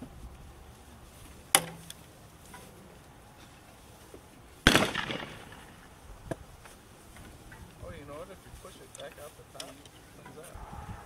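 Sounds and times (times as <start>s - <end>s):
shotgun shots: 4.7s - 5.8s.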